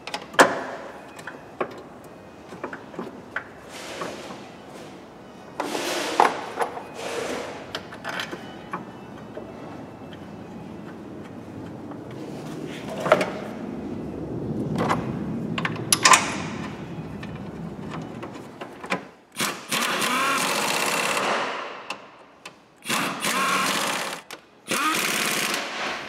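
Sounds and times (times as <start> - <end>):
power ratchet whirring: 19.4 - 21.3, 22.8 - 25.9.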